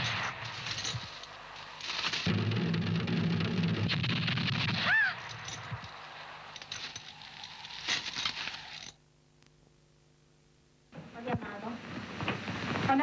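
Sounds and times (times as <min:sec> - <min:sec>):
quiet crackling: 0:00.0 - 0:13.0
field drum roll: 0:02.2 - 0:03.9.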